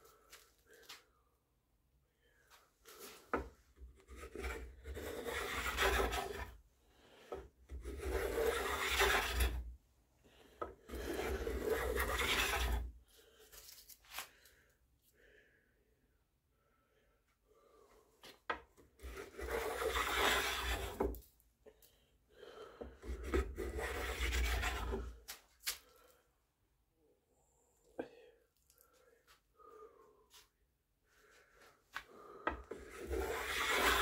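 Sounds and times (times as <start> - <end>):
sanding block rubbing wood: 4.1 - 6.5, 7.8 - 9.6, 10.9 - 12.8, 19.1 - 21.0, 23.3 - 25.0, 32.8 - 34.0.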